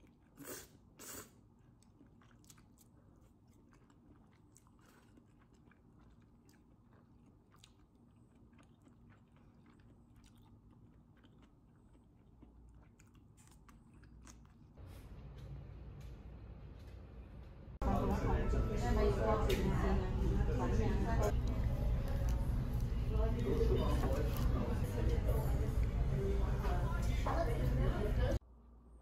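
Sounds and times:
person chewing food: 0.0s - 14.8s.

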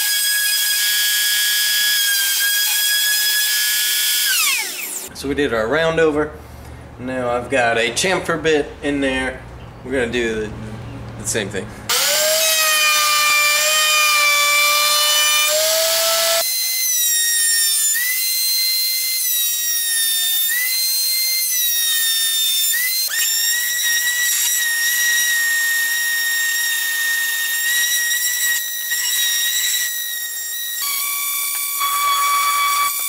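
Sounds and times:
power sander whining: 0.0s - 5.1s, 11.9s - 33.0s
wood router whining: 0.0s - 5.1s, 11.9s - 33.0s.

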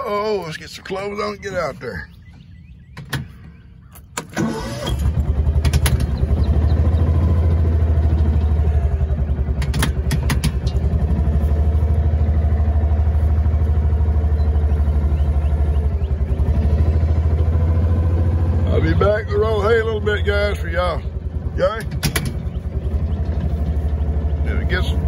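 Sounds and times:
vehicle engine starting and idling: 0.0s - 25.0s
sharp clicks: 9.5s - 11.0s, 21.8s - 22.7s.

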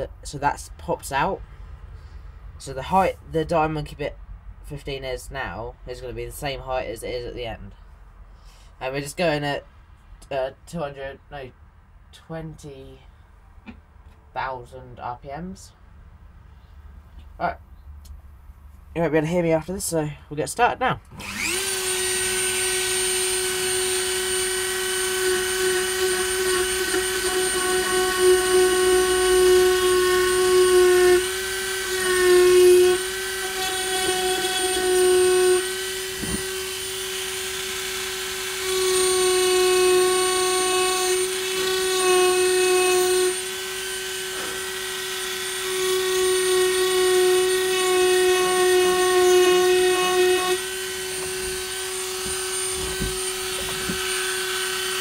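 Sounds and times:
rotary tool grinding wood: 21.2s - 55.0s.

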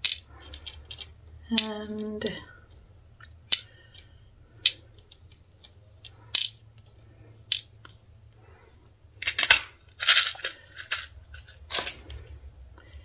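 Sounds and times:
plastic packet rustling: 9.2s - 12.0s.

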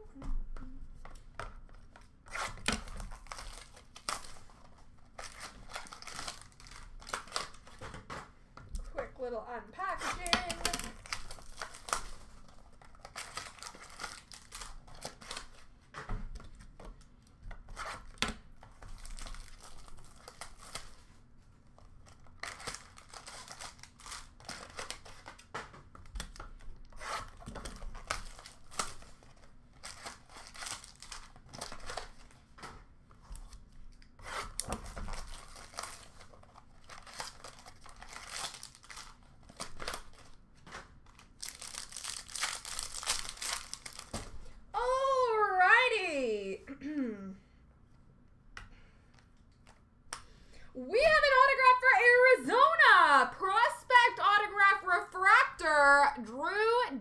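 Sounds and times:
wrapping being torn and crinkled: 1.7s - 7.9s, 9.8s - 15.8s, 16.4s - 32.6s, 33.2s - 45.7s.

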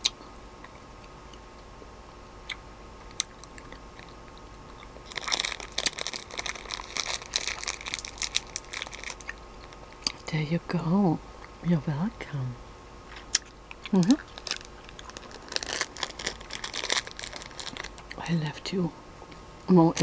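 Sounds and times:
plastic bag crinkling: 5.0s - 9.4s, 13.9s - 18.2s.

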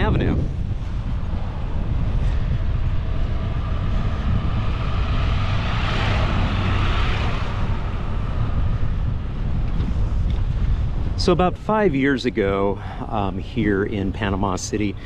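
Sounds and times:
motorcycle passing: 0.0s - 11.2s
wind rumble on microphone: 0.0s - 15.0s.

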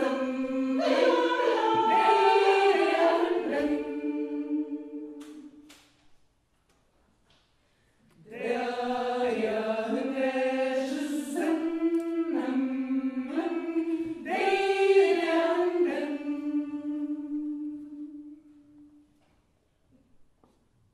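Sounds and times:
women's choir singing: 0.0s - 5.7s, 8.2s - 19.0s.

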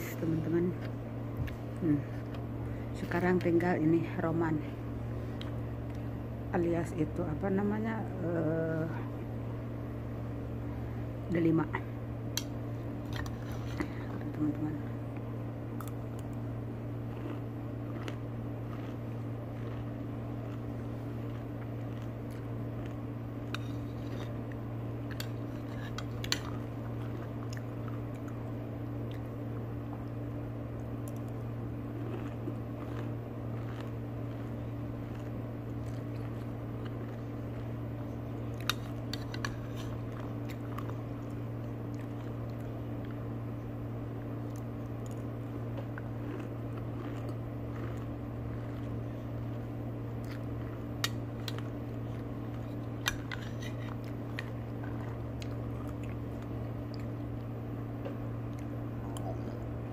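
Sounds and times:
low hum: 0.0s - 59.9s
person chewing and crunching: 12.4s - 30.1s, 30.7s - 43.3s, 44.3s - 59.9s.

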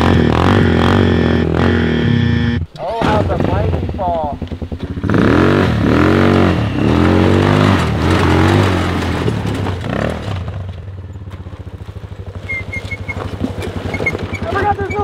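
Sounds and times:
quad engine revving: 0.0s - 11.3s, 12.4s - 15.0s.

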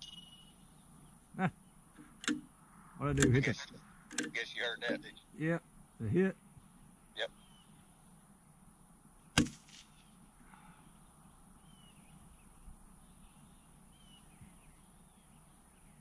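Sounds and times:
birds chirping: 0.0s - 16.0s
rifle shot: 9.4s - 10.0s.

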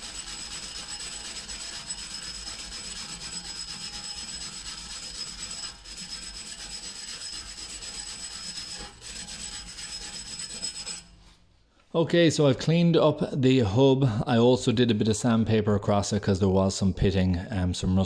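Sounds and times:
wire brush scratching metal: 0.0s - 11.4s.

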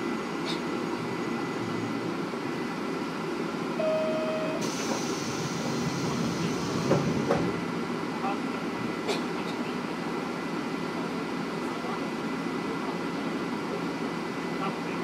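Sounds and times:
diesel railcar idling: 0.0s - 15.0s
short beep: 3.8s - 4.6s.

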